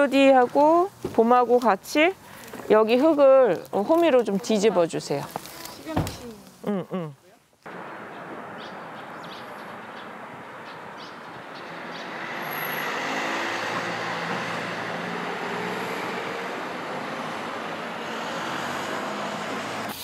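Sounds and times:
road traffic noise: 0:07.7 - 0:20.0
vehicle passing: 0:07.7 - 0:20.0.

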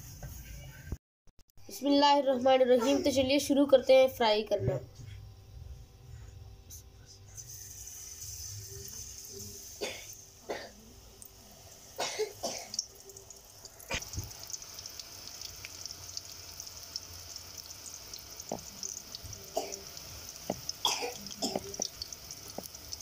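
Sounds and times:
batter sizzling in hot oil: 0:07.4 - 0:10.5, 0:12.6 - 0:23.0.

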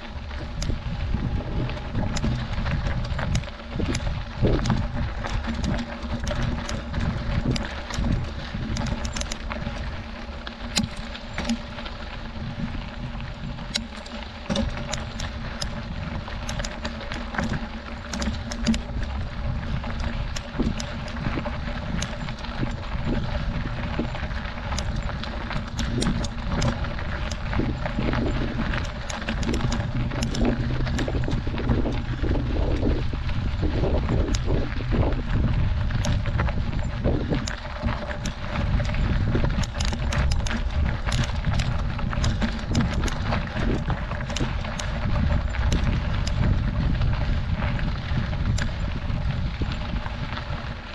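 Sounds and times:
bike clicking and rattling: 0:00.0 - 0:50.9
wind and tyre rumble: 0:00.0 - 0:50.9.

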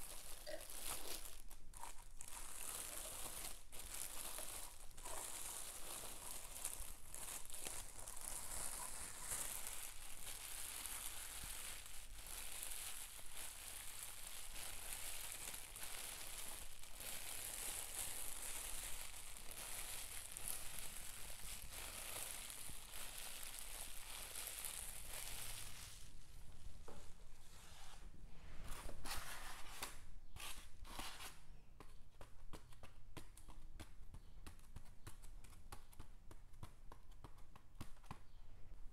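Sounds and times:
plastic packaging crinkling: 0:00.0 - 0:26.2.

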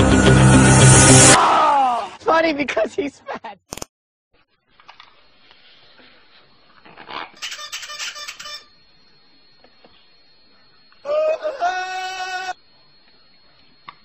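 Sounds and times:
toy rattling: 0:07.4 - 0:08.7.

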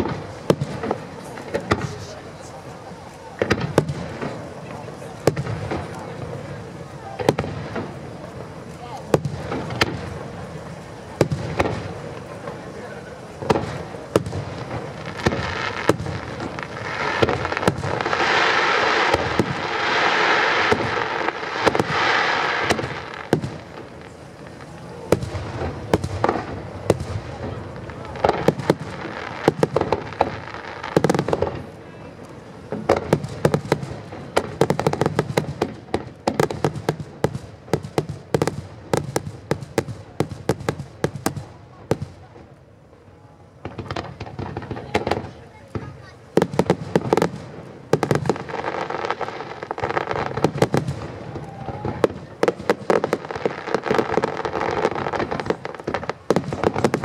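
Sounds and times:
rapid firework crackle: 0:00.0 - 0:57.0
firework shells bursting: 0:13.4 - 0:24.1.

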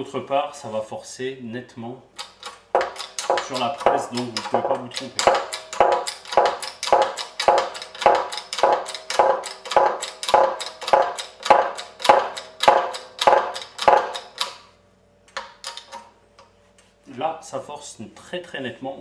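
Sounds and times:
hydraulic jack metallic clacking: 0:02.2 - 0:14.7.

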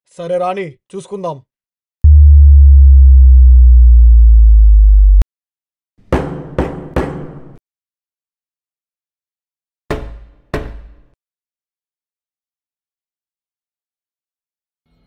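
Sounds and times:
deep bass tone: 0:02.0 - 0:05.2
hammer banging on a door: 0:06.1 - 0:07.6, 0:09.9 - 0:11.2.

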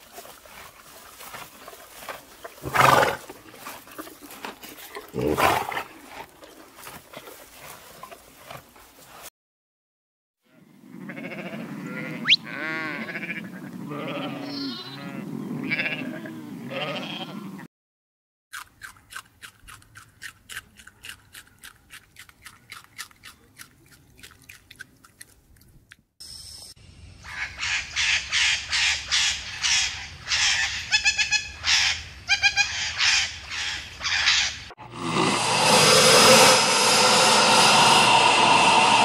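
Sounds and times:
sheep bleating: 0:11.0 - 0:17.7
rabbit chewing leafy greens: 0:18.6 - 0:25.7.

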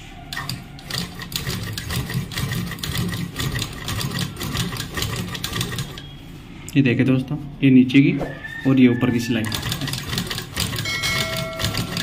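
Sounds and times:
sewing machine stitching: 0:00.3 - 0:06.0, 0:09.4 - 0:12.0.

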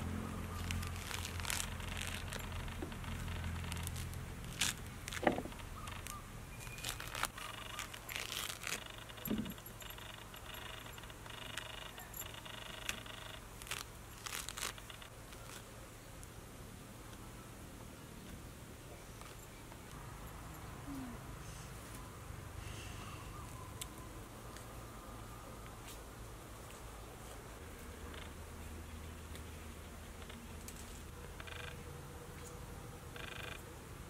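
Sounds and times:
fruit peel tearing: 0:00.1 - 0:09.0, 0:13.6 - 0:15.7.

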